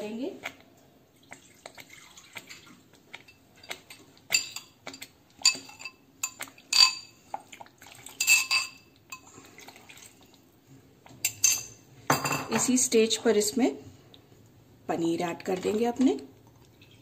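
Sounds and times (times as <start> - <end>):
metal spoon clinking on glass bowl: 4.3 - 4.8, 5.4 - 7.1, 8.2 - 8.8, 11.3 - 12.7.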